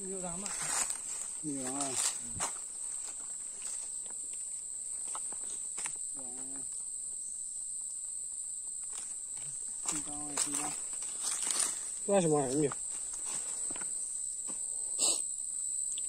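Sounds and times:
insects droning: 0.0 - 16.0
person's voice: 9.9 - 10.8.

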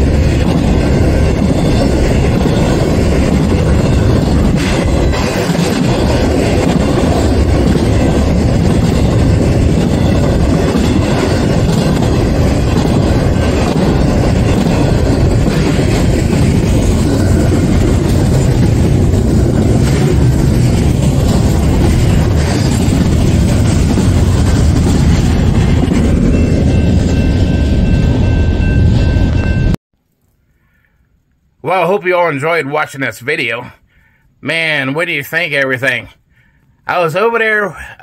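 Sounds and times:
freight train wheels rumbling on rails: 0.0 - 29.8.

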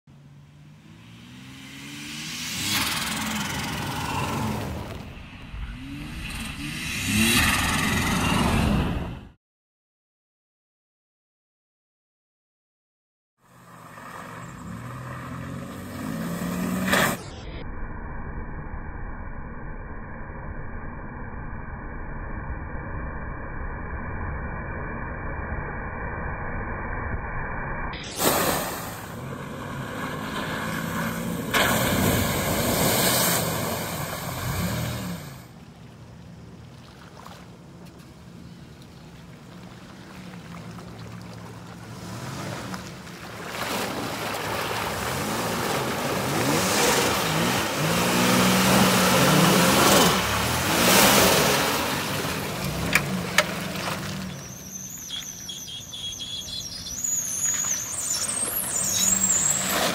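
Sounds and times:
truck engine revving: 0.6 - 9.2, 13.7 - 17.3, 28.5 - 35.5, 44.4 - 59.9
mud and water splashing: 28.1 - 59.9.

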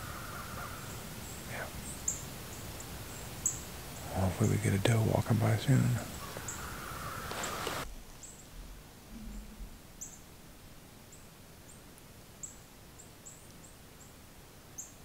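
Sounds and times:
small birds chirping: 0.0 - 8.6, 9.2 - 10.3.

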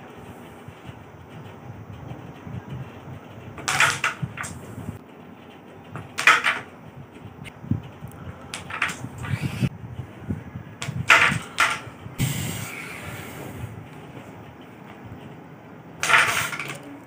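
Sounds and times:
carrom striker clacking on pieces: 3.6 - 4.7, 5.9 - 6.8, 8.4 - 9.2, 10.8 - 11.9, 16.0 - 17.0.

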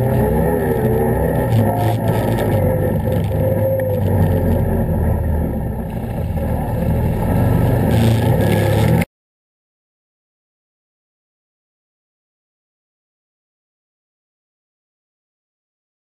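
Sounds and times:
atv engine droning: 0.0 - 9.1.

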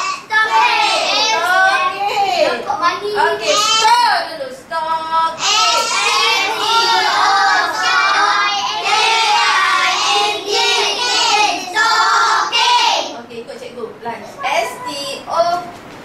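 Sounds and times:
children singing: 5.4 - 13.0.

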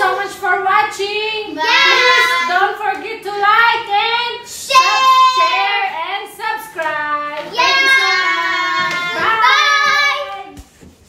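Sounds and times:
children singing: 1.6 - 2.7, 7.4 - 10.4.

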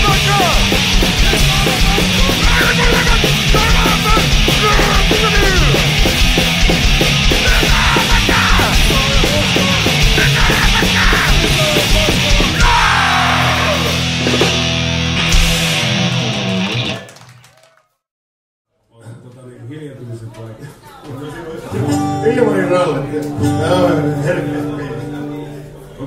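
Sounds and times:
yelled vocals: 0.0 - 14.2
fast pounding drums: 0.0 - 16.4
distorted guitars: 0.0 - 17.0, 21.8 - 26.0.

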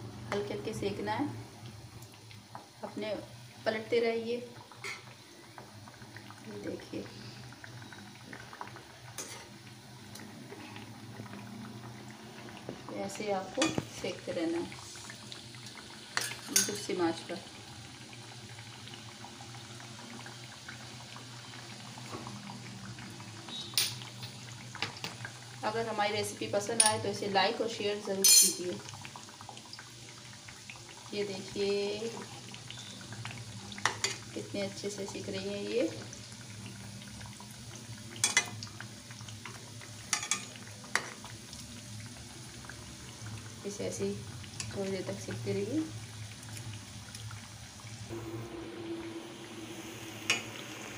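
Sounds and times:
oil bubbling and crackling: 0.0 - 50.9
metal spoon clinking against pan: 28.2 - 28.6.

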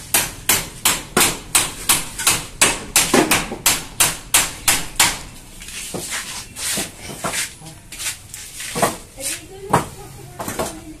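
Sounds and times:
hammer striking: 0.0 - 5.3.

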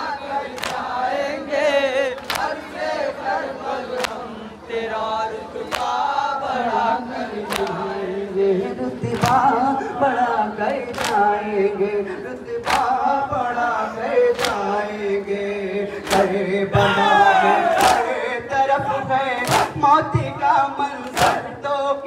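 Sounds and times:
men chanting in chorus: 0.0 - 22.0
hands slapping chests: 12.6 - 12.9, 19.4 - 19.8, 21.0 - 21.4.

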